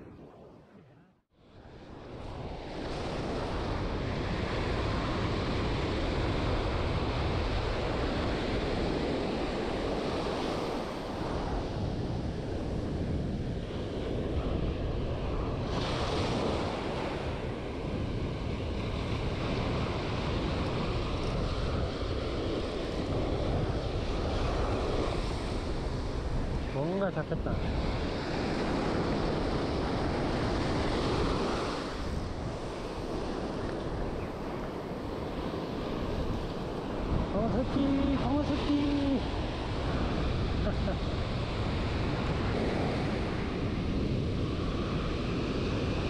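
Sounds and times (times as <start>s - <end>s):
surf washing over beach: 1.4s - 46.0s
wind buffeting microphone: 1.4s - 46.0s.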